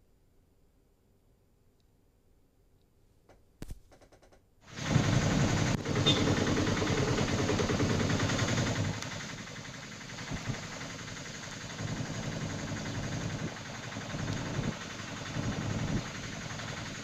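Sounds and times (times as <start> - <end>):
steady hiss: 4.7 - 17.0
vehicle engines idling: 4.7 - 17.0.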